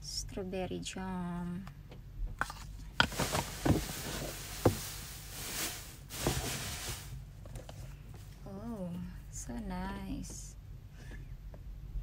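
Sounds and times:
shredded paper rustling: 3.0 - 7.2.

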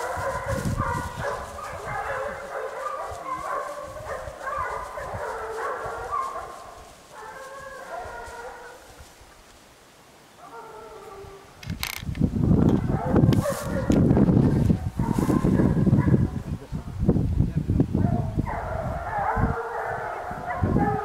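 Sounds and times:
hunting dogs baying: 0.0 - 9.0, 12.7 - 16.5, 18.0 - 21.0.

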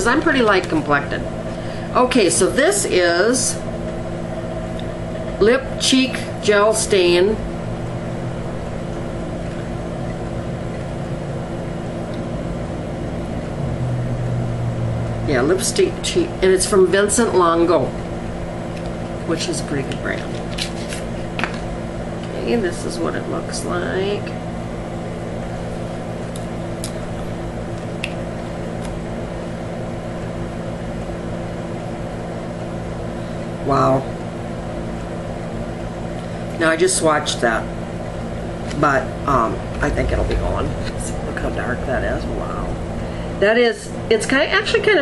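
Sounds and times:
low mechanical hum: 0.0 - 45.0
constant rushing noise: 38.6 - 44.5.

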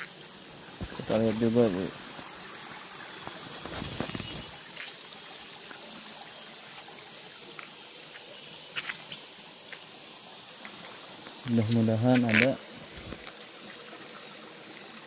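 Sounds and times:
thin high whine: 0.0 - 14.0
river water trickling: 0.0 - 15.0.

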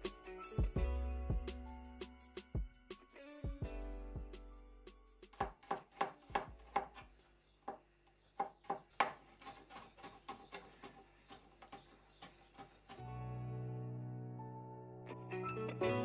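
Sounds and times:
knife chopping on cutting board: 5.3 - 7.1, 8.4 - 12.8.

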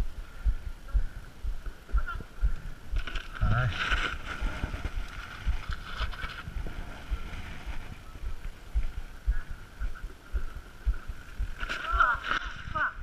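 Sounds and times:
mountain bike rolling on dirt: 2.8 - 12.9.

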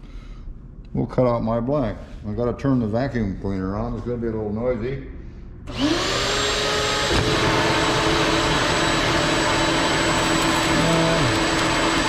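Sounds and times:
vacuum cleaner running: 5.7 - 12.0.

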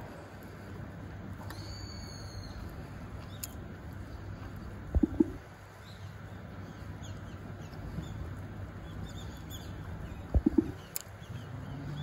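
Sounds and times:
faint bird chirps: 1.4 - 3.6, 4.9 - 12.0
low rumble: 4.9 - 5.5, 10.0 - 10.9.

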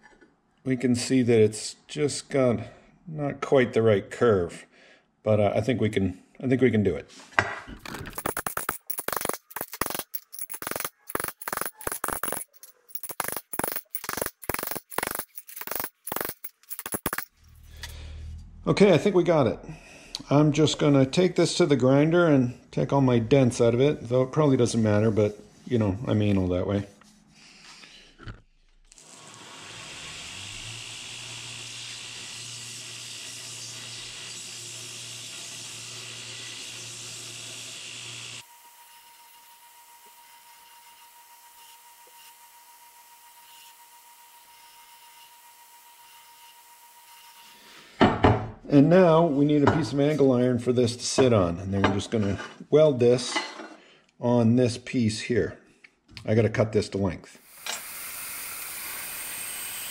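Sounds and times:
belt grinder grinding steel: 7.8 - 17.6, 28.9 - 42.4, 57.4 - 59.9.

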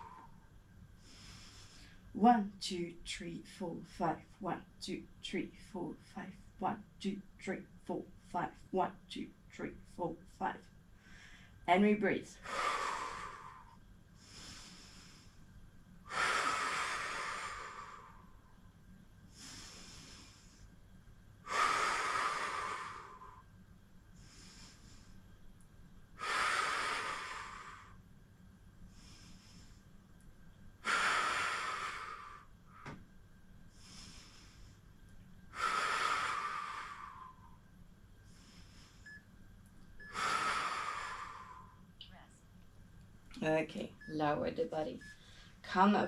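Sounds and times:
woman breathing hard: 0.0 - 2.1, 12.4 - 15.5, 16.1 - 18.5, 19.3 - 20.8, 21.4 - 23.6, 24.2 - 25.3, 26.2 - 28.0, 30.8 - 33.0, 33.7 - 39.2, 40.0 - 41.9, 45.1 - 45.6.

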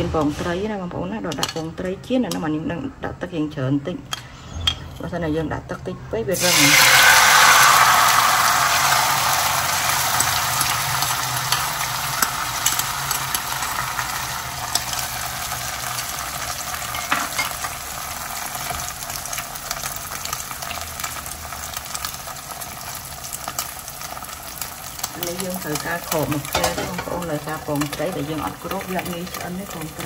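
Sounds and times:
egg sizzling in hot oil: 6.4 - 30.0.

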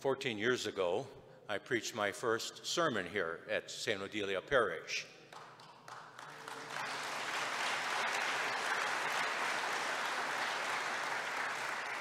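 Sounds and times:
crowd applauding: 5.4 - 12.0.

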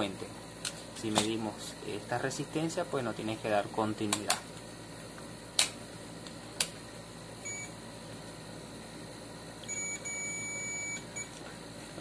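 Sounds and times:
multimeter continuity beeping: 7.4 - 7.8, 9.6 - 11.4.

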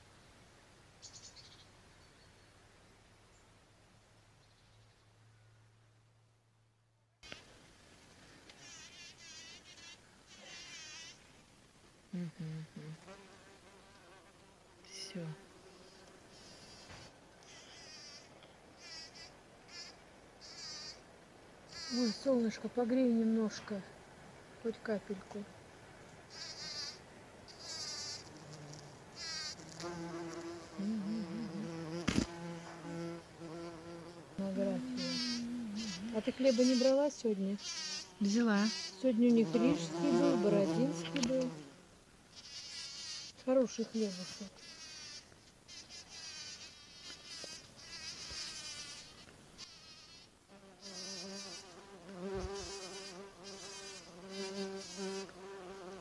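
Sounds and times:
bumblebee buzzing: 8.6 - 11.3, 12.2 - 21.0, 21.7 - 23.4, 26.3 - 56.0.

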